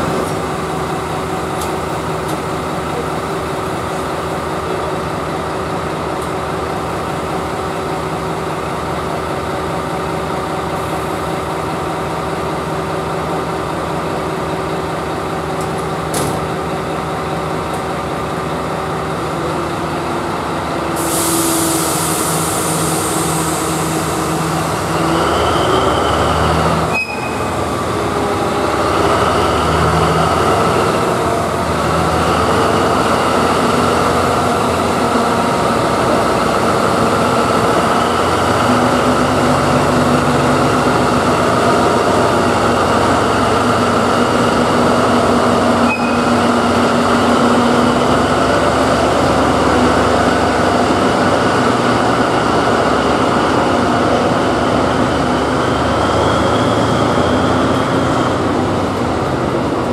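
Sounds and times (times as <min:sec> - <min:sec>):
diesel locomotive engine: 0:00.0 - 0:59.9.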